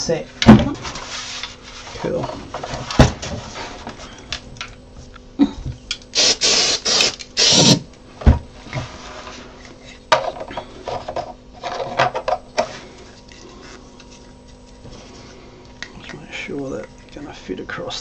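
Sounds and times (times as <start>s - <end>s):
plastic parts knocking on metal bench: 10.1s - 12.7s.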